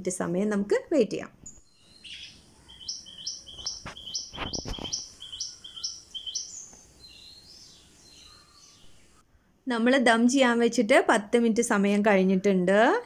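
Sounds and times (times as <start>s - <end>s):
small bird chirping: 1.4s - 9.2s.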